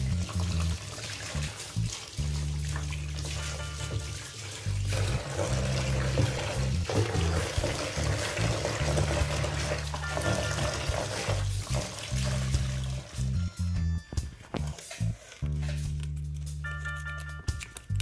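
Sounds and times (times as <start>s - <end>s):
water splashing into paint tray: 0.0s - 13.2s
background music: 0.0s - 18.0s.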